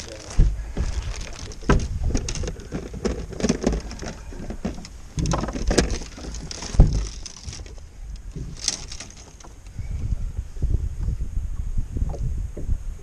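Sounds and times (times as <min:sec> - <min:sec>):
knocks and rattles on a boat: 0:00.0 - 0:10.2
wind rumbling on microphone: 0:00.0 - 0:13.0.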